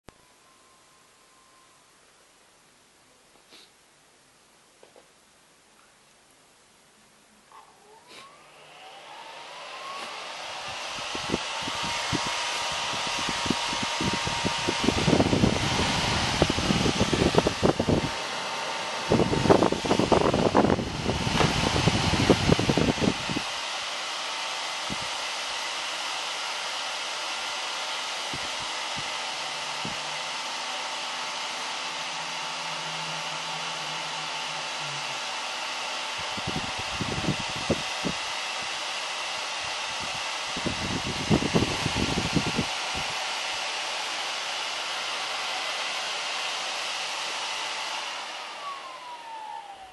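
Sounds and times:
fan rush of air: 0:07.8 - 0:49.9.

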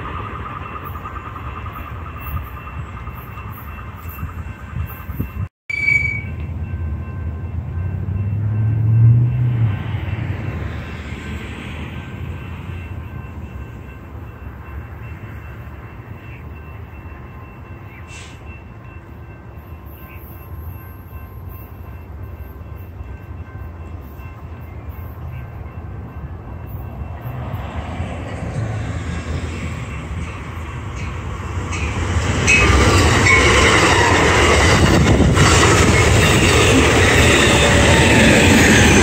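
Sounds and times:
train approaching rumble: 0:00.0 - 0:39.0.

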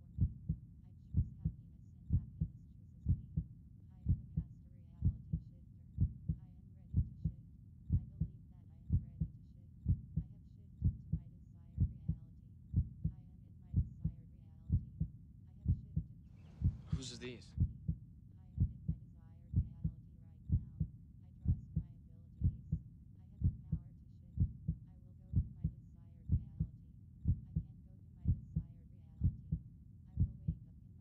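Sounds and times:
heartbeat thumps: 0:00.2 - 0:00.6, 0:01.2 - 0:02.5, 0:03.1 - 0:03.5, 0:04.1 - 0:06.4, 0:07.0 - 0:08.3, 0:08.9 - 0:11.2, 0:11.8 - 0:13.2, 0:13.8 - 0:15.1, 0:15.7 - 0:18.0, 0:18.6 - 0:20.9, 0:21.5 - 0:22.8, 0:23.4 - 0:23.8, 0:24.4 - 0:27.7, 0:28.3 - 0:29.6, 0:30.2 - 0:30.6.

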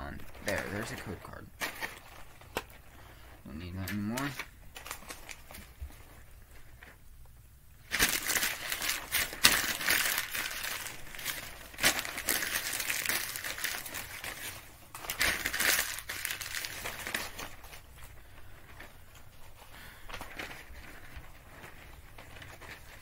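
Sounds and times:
paper being crumpled: 0:00.0 - 0:07.0, 0:07.8 - 0:23.0.

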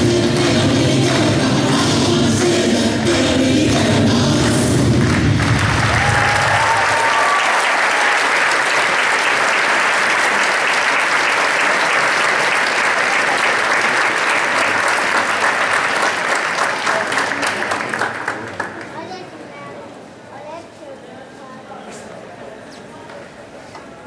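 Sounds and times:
music: 0:00.0 - 0:06.4
audience applauding: 0:04.5 - 0:19.1.

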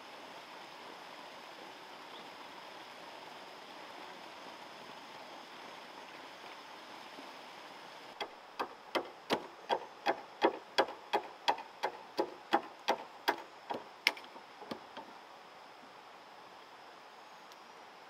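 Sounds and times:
wooden club knocking on log: 0:08.2 - 0:15.1.

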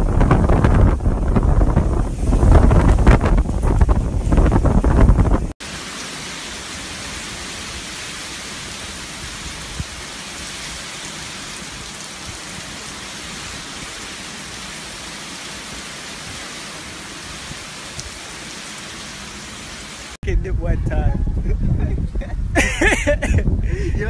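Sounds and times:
wind buffeting microphone: 0:00.0 - 0:05.6, 0:20.2 - 0:24.0
heavy rain pouring: 0:00.0 - 0:20.7, 0:21.3 - 0:24.0.

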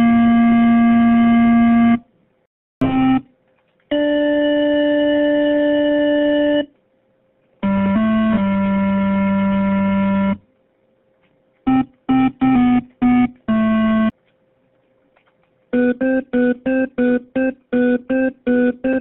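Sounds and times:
electronic keyboard music: 0:00.0 - 0:02.0, 0:02.8 - 0:03.3, 0:03.9 - 0:06.7, 0:07.6 - 0:10.4, 0:11.7 - 0:14.2, 0:15.7 - 0:19.0.

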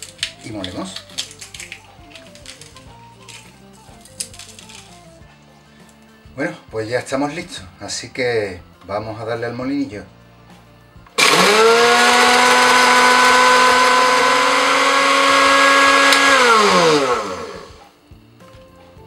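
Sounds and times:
electric coffee grinder whine: 0:11.2 - 0:18.0.

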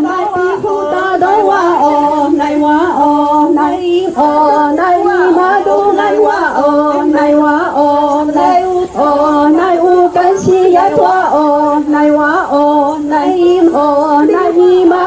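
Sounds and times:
unaccompanied group singing: 0:00.0 - 0:15.0.

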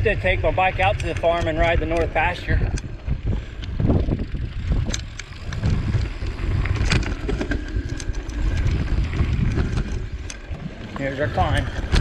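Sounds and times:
bike clicks and rattles: 0:00.0 - 0:12.0
wind rumble on microphone: 0:00.0 - 0:12.0
tyres rolling over gravel: 0:04.4 - 0:12.0.

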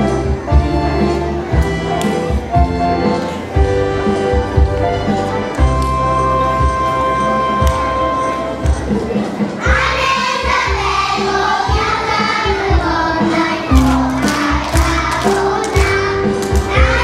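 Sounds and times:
backing music with steady beat: 0:00.0 - 0:17.0
children singing: 0:09.6 - 0:17.0.

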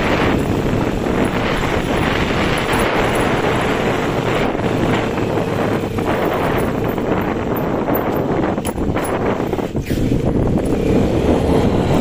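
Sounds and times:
motorcycle engine running: 0:00.0 - 0:12.0
wind buffeting microphone: 0:00.0 - 0:12.0.

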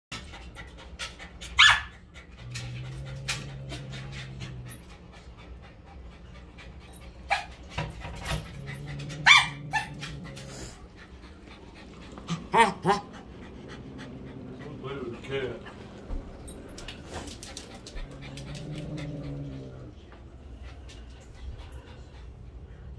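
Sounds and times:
dog panting: 0:00.1 - 0:22.9
dog whining: 0:08.2 - 0:10.9, 0:12.3 - 0:14.7.

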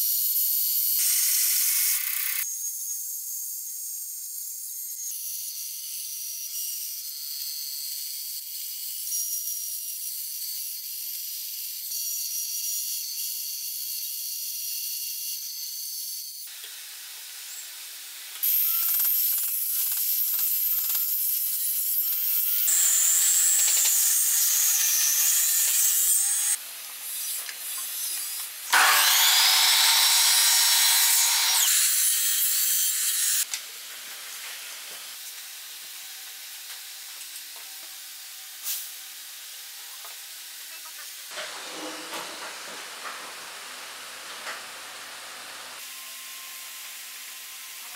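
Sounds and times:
miter saw cutting with whine: 0:04.3 - 0:33.5, 0:45.8 - 0:47.9
band saw cutting wood: 0:18.4 - 0:33.5.

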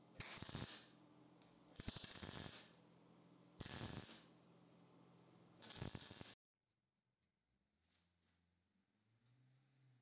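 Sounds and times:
welding arc crackling: 0:00.2 - 0:00.9, 0:01.8 - 0:02.8, 0:03.6 - 0:04.3, 0:05.6 - 0:06.4.

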